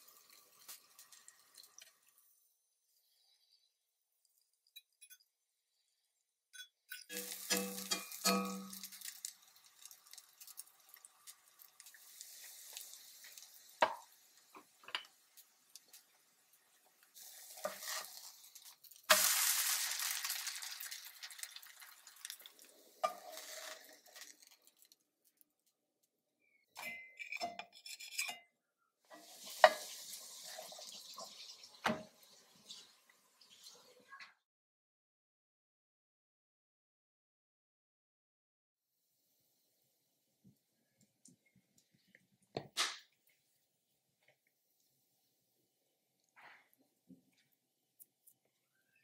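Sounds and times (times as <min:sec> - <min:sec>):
pancake sizzling in oil: 0:00.0 - 0:03.0, 0:07.0 - 0:25.0, 0:29.1 - 0:34.0
spatula scraping cast iron skillet: 0:06.9 - 0:09.2, 0:17.2 - 0:20.4, 0:23.0 - 0:24.5, 0:26.9 - 0:28.4.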